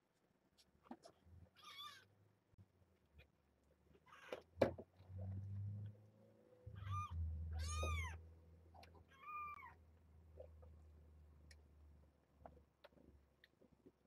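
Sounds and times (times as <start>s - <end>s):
kittens mewing: 6.7s - 8.2s.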